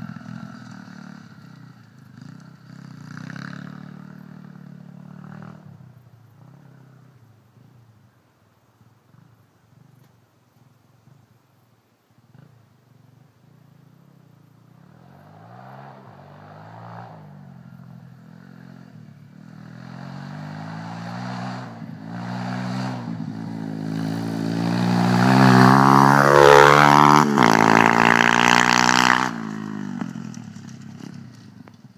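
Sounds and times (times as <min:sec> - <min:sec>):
motorbike engine passing by: 0:00.0 - 0:07.2, 0:14.6 - 0:31.9.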